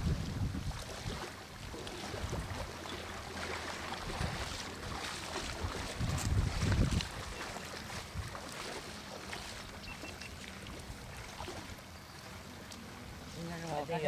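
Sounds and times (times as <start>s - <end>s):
wind buffeting microphone: 0.0s - 8.8s
steady wind: 0.0s - 14.0s
water noise: 0.0s - 14.0s.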